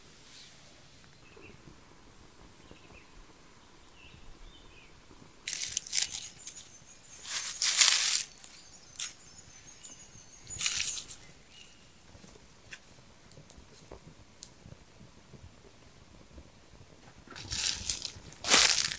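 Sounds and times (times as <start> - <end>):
dried herbs crumbled by hand: 5.4 - 9.2, 9.8 - 11.3, 17.3 - 18.9.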